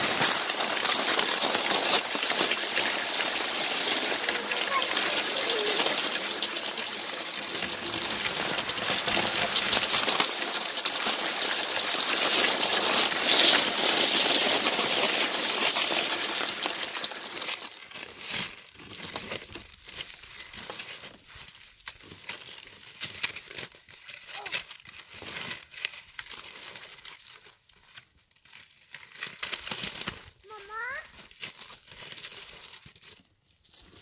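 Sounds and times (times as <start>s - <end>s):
snow crunching: 0.0s - 18.2s
skis scraping on snow: 0.0s - 18.8s.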